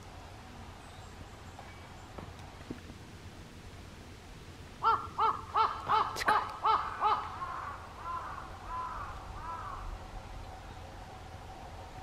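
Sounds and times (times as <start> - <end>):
woodpecker calling: 4.8 - 10.0.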